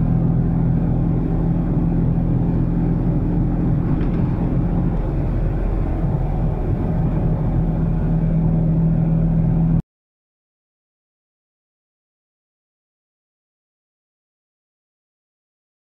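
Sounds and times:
road noise: 0.0 - 9.8
small car engine running: 0.0 - 9.8.

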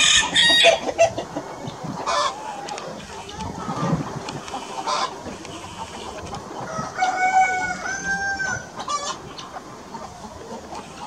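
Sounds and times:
rooster crowing: 0.0 - 0.8, 6.6 - 8.7
chickens clucking: 0.0 - 11.0.

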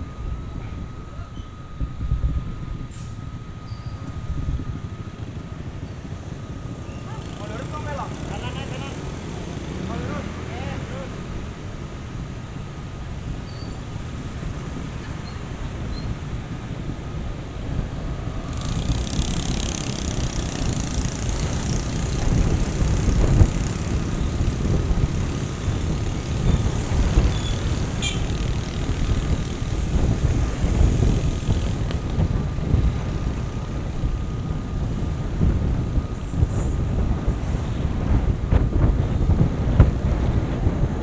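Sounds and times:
road noise: 0.0 - 41.0
wind rumbling on microphone: 0.0 - 41.0.

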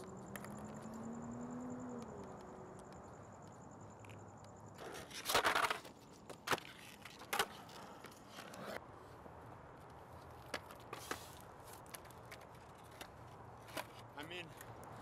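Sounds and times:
skateboard rolling on concrete: 0.0 - 15.0
skateboard clacks: 4.8 - 8.8.

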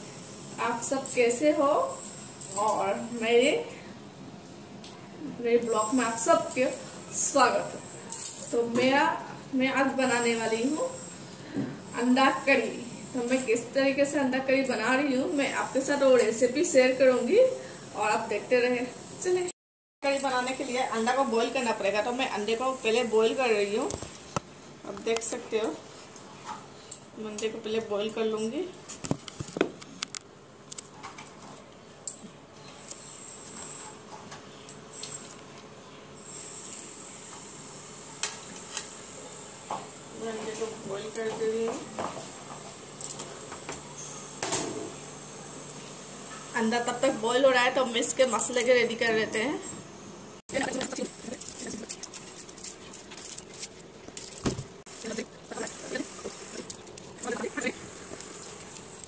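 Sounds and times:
thin high whine: 5.2 - 19.4, 32.6 - 59.0
onion skin crackling: 50.6 - 59.0.

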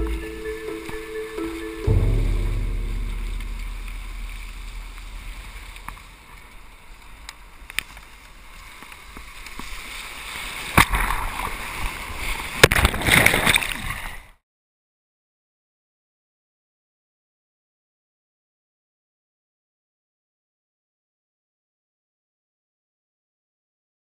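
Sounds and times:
heavy low rumble: 0.0 - 6.7
water rushing and splashing: 0.0 - 14.3.

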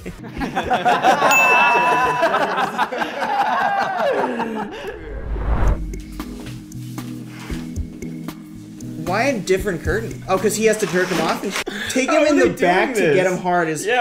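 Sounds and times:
background music: 0.0 - 4.7, 5.8 - 13.5
men laughing: 0.0 - 5.2
electronic ding: 1.3 - 2.8
low rumble: 4.9 - 6.2.

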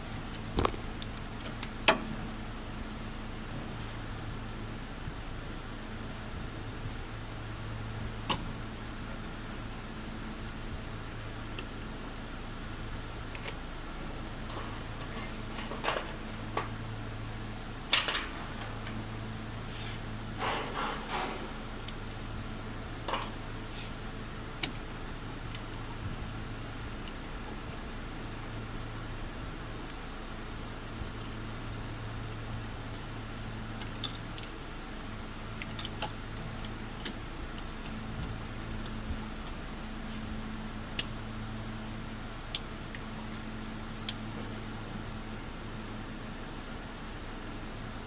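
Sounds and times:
steady low hum: 0.0 - 48.0
clicks and clatters of parts: 14.4 - 16.8, 17.9 - 19.0, 20.4 - 22.1, 23.0 - 23.4, 33.7 - 39.6.

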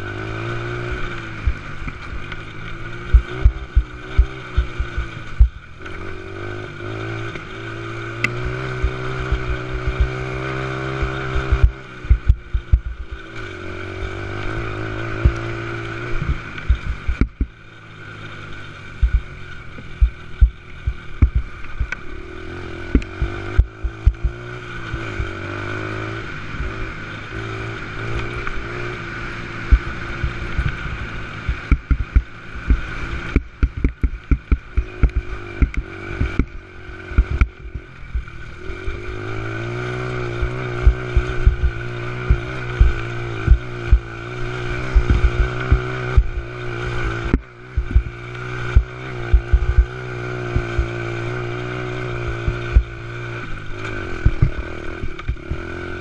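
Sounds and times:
small atv engine revving: 0.0 - 56.0
knocks from bumps: 31.5 - 37.5.

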